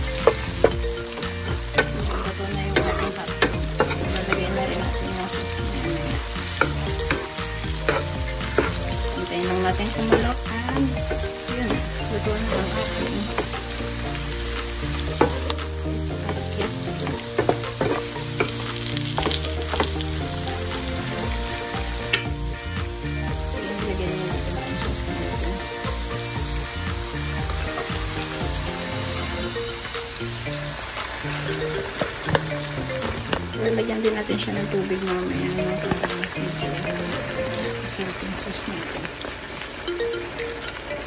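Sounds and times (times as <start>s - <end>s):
meat sizzling in oil: 0.0s - 40.0s
wooden spatula scraping pan: 0.2s - 22.2s.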